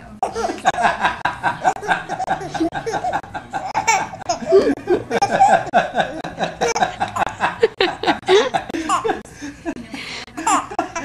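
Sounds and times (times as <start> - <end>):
baby giggling: 1.6 - 9.2, 10.4 - 11.0.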